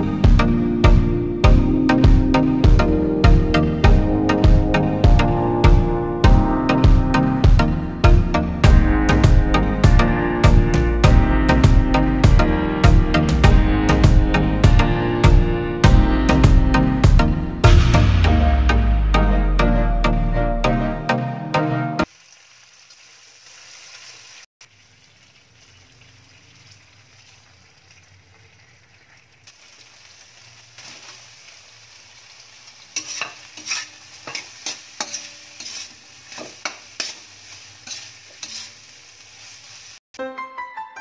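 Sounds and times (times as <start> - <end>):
food sizzling in a wok: 22.0 - 40.1
metal spatula scraping a pan: 32.9 - 39.8.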